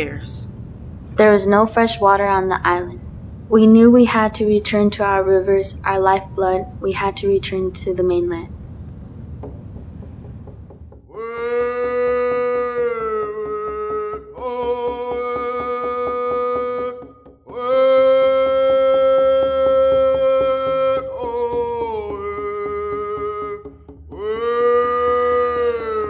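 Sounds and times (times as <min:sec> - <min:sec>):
music of long held notes: 0:11.5 - 0:26.0.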